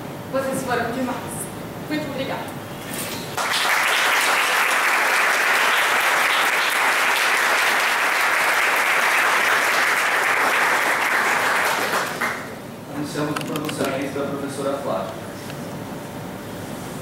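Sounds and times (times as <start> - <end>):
audience applauding: 3.4 - 12.5.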